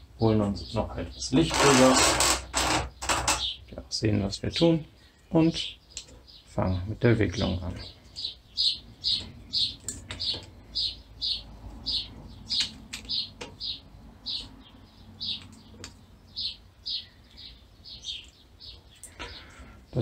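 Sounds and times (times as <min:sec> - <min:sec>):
serving jig squeaking: 0:01.4 - 0:03.6.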